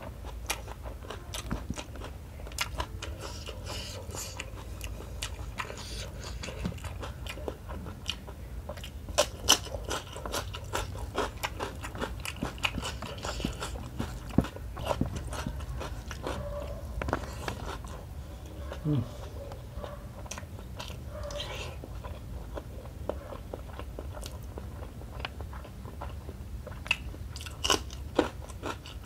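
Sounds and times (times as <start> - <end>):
low steady hum: 0.0 - 29.0
wet chewing and lip-smacking: 0.2 - 29.0.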